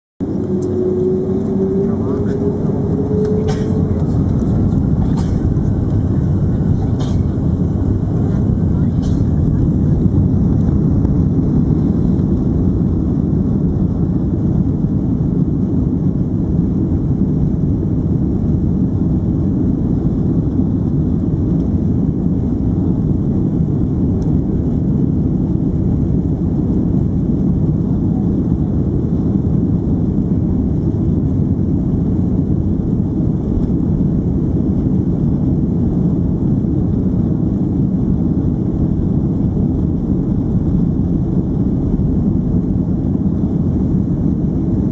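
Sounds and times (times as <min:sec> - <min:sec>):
runway rumble: 0:00.2 - 0:15.8
jet engines at takeoff power: 0:00.2 - 0:44.9.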